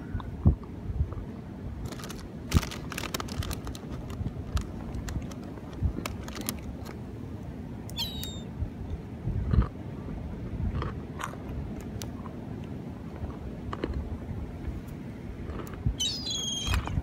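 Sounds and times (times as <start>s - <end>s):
gulls calling: 7.9s - 8.5s, 16.0s - 17.0s.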